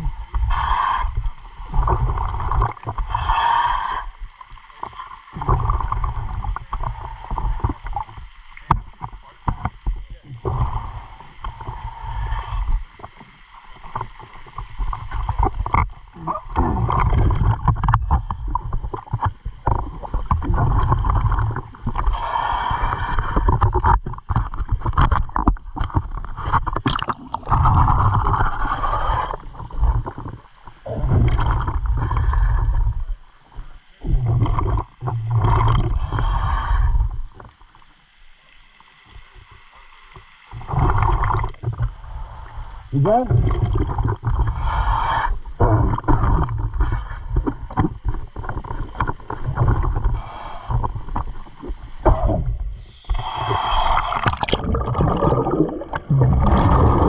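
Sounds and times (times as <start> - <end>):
muffled underwater gurgling: 0.0 - 37.6, 40.4 - 57.0
water sloshing and splashing: 1.2 - 3.4, 4.1 - 12.2, 12.8 - 44.7, 45.3 - 57.0.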